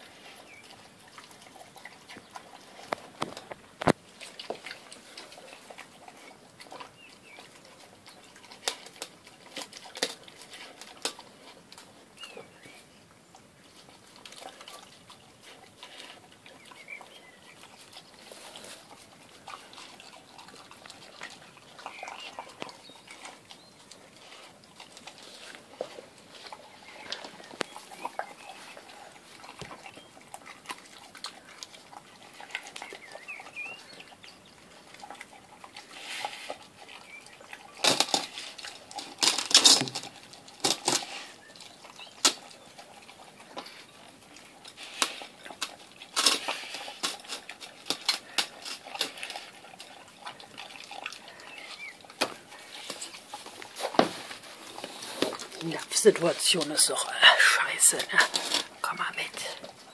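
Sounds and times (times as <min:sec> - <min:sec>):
dog chewing and licking: 0:00.0 - 0:59.9.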